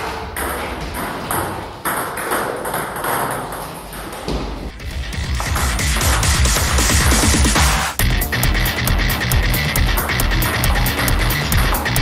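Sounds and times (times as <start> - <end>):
table tennis ball hits: 0.0 - 6.7, 10.0 - 12.0
music with heavy beat: 4.7 - 12.0.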